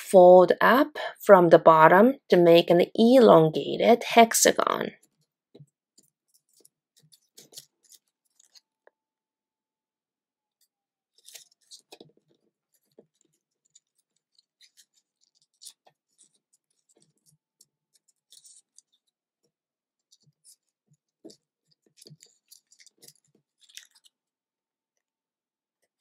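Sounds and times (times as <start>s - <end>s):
paper being folded and creased: 6.0s - 8.6s, 11.1s - 24.3s.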